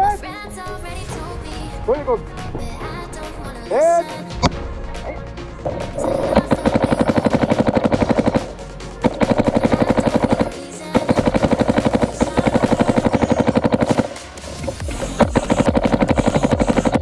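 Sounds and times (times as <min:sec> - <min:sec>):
paintball marker rapid firing: 0:06.0 - 0:17.0.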